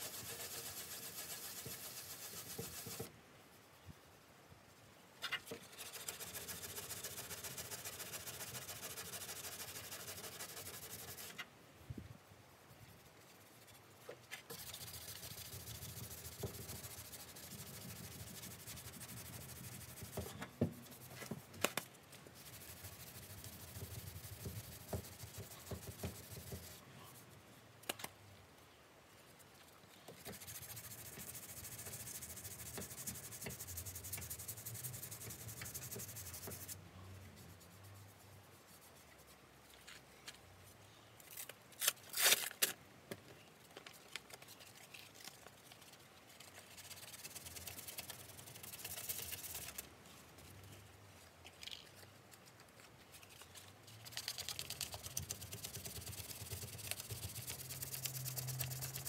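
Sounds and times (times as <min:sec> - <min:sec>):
hand sanding with sponge: 0:00.0 - 0:03.1, 0:05.5 - 0:11.4, 0:12.8 - 0:21.5, 0:22.3 - 0:27.4, 0:30.2 - 0:36.8, 0:37.4 - 0:39.4, 0:44.4 - 0:50.8, 0:52.4 - 0:59.0.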